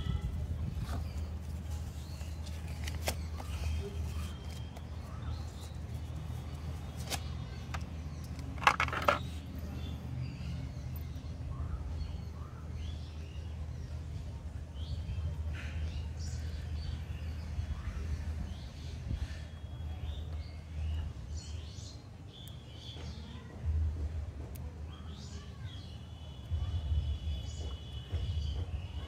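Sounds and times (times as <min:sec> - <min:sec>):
paper crinkling: 0:00.7 - 0:07.5
paper cards laid on table: 0:00.8 - 0:09.4.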